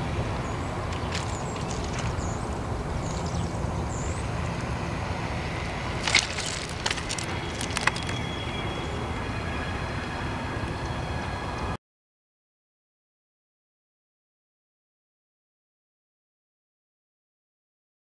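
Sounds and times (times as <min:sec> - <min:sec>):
low outdoor rumble: 0:00.0 - 0:11.8.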